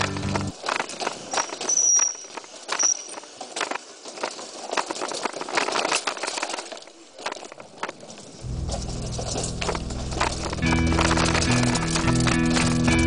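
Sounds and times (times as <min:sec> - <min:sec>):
bike rattling over stone paving: 0:00.0 - 0:13.0
short high squeals: 0:01.3 - 0:03.2.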